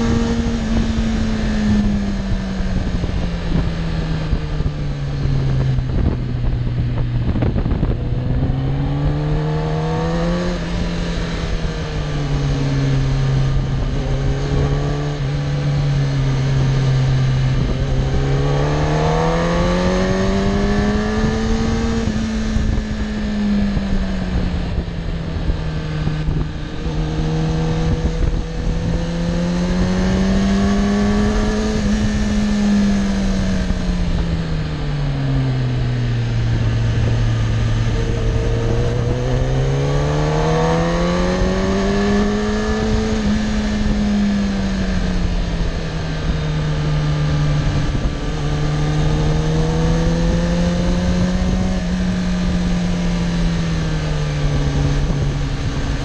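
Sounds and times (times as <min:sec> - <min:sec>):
motorcycle engine revving: 0:00.0 - 0:56.0
wind rushing: 0:35.6 - 0:45.7.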